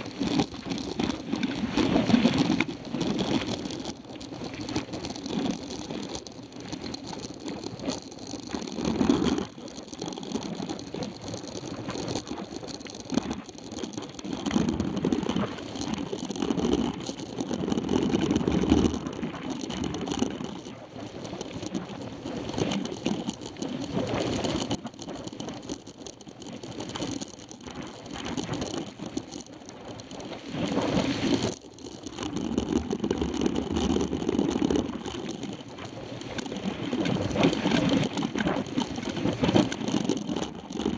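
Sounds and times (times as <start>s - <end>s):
bike tyre noise on dirt: 0.0s - 40.9s
small clicks: 0.0s - 40.9s
bike rattling over bumps: 22.4s - 40.9s.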